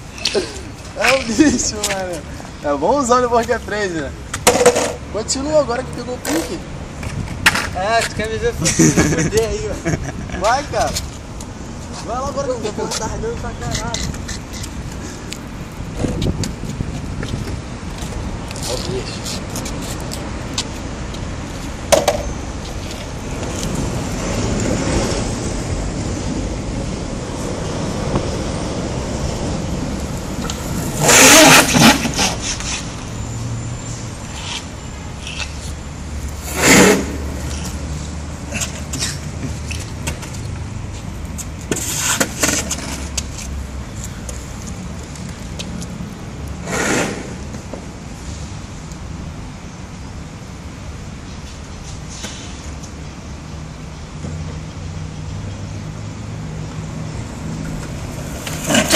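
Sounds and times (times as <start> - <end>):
longboard wheels rolling on concrete: 0.0 - 49.1, 55.8 - 58.9
wheels rolling over concrete: 4.3 - 5.0, 27.2 - 33.0, 34.3 - 40.7, 41.3 - 43.6, 57.6 - 58.9.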